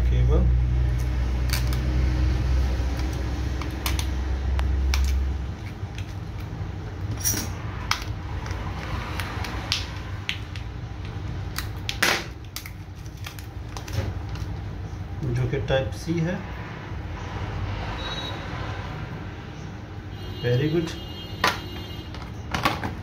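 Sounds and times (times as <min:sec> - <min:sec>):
plastic wrapping crinkling: 0:11.5 - 0:14.6.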